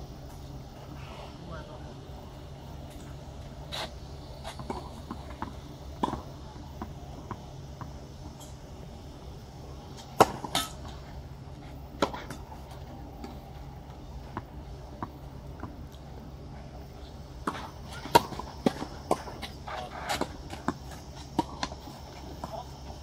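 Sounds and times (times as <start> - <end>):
tennis ball bouncing: 4.4 - 8.6, 9.9 - 11.0, 11.9 - 13.4, 17.0 - 23.0
tennis racket hitting ball: 17.4 - 22.6.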